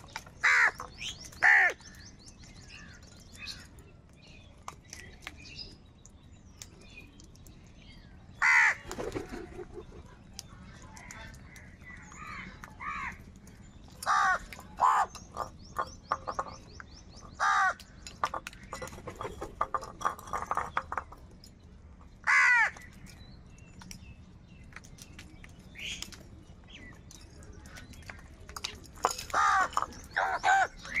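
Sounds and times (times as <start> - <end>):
crows cawing: 0.4 - 0.8, 1.4 - 1.9, 8.4 - 8.9, 12.1 - 13.2, 14.0 - 15.2, 17.4 - 17.9, 22.2 - 22.9, 29.3 - 30.8.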